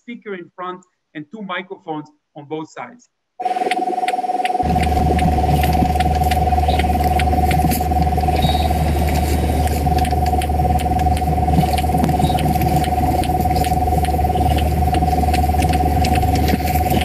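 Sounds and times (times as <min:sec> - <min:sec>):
low hum: 0:03.4 - 0:17.0
robot motors whining: 0:04.0 - 0:17.0.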